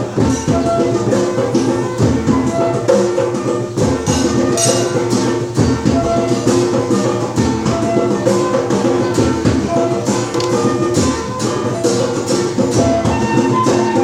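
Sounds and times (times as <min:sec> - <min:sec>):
lively music with steady beat: 0:00.0 - 0:14.0.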